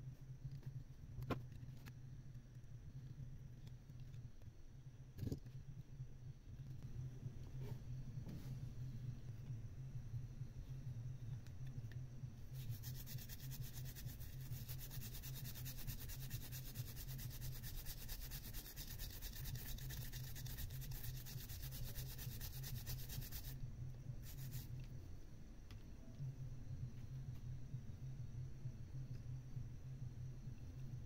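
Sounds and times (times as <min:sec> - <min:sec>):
steady low hum: 0:00.0 - 0:31.0
cotton swab scrubbing circuit board: 0:12.5 - 0:23.6, 0:24.2 - 0:24.7.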